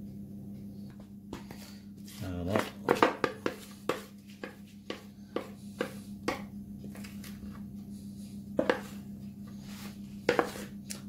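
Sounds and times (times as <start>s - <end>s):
steady low hum: 0.0s - 11.0s
spoon scraping plastic bowl: 8.6s - 10.8s.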